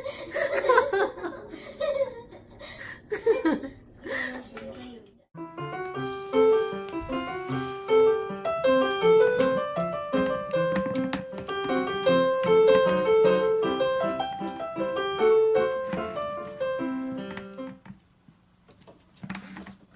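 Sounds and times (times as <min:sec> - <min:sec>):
piano music: 0:05.4 - 0:17.8.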